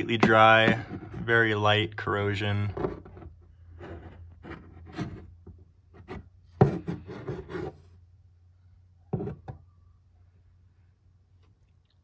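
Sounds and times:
metal scraping against wood: 0:00.0 - 0:01.7, 0:02.5 - 0:07.9.

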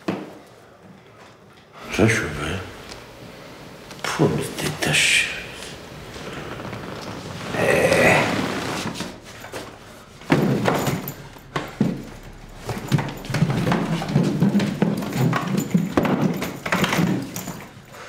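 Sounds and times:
furniture and suitcase knocks and scrapes: 0:06.1 - 0:17.9.

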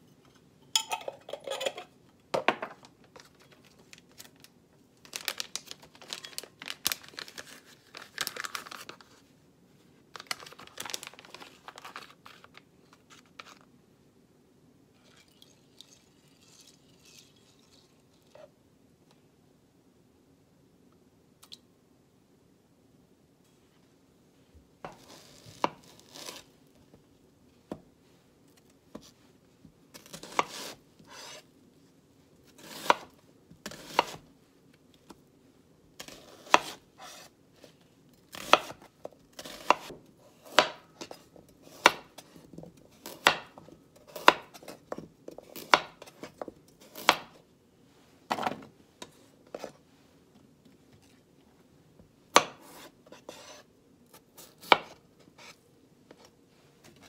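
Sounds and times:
knife chopping vegetables on board: 0:52.3 - 0:53.6.

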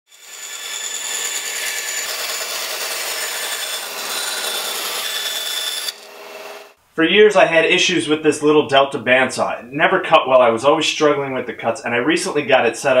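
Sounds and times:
bandsaw cutting wood: 0:00.1 - 0:06.8
high saw whine: 0:00.1 - 0:06.8.

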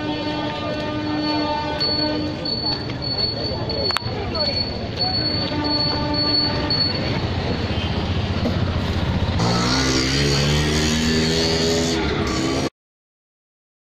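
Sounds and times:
street traffic engines: 0:00.0 - 0:12.7
vehicle engine pulling away: 0:08.3 - 0:12.7.

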